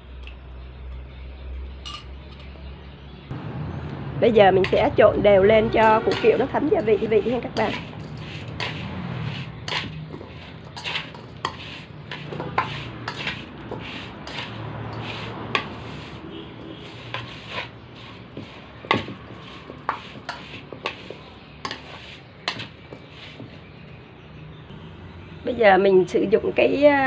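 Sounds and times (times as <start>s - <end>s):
chopsticks tapping metal bowl: 5.8s - 8.8s, 18.8s - 23.1s.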